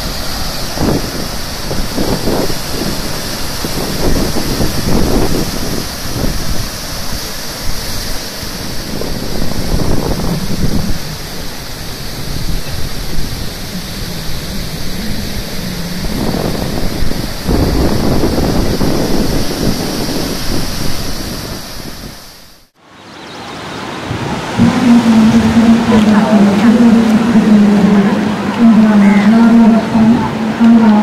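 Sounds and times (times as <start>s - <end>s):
surf breaking over rocks: 0.0s - 22.7s
wind buffeting microphone: 0.0s - 22.7s, 23.8s - 31.0s.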